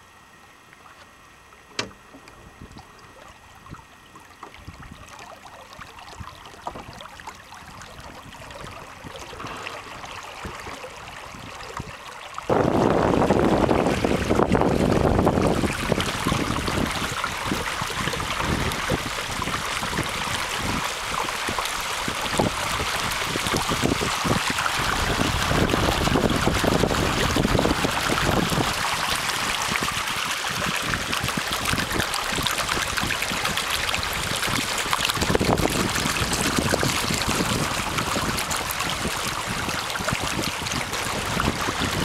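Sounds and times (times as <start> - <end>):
water rushing along hull: 0.0 - 42.0
wind rumble on microphone: 6.1 - 42.0.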